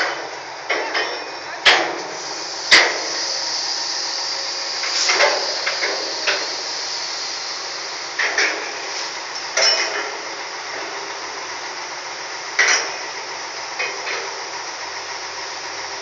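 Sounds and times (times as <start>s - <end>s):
sharp metallic clanks: 0.0s - 2.1s, 9.4s - 10.2s, 12.6s - 13.0s
hiss of heavy machinery: 0.0s - 16.0s.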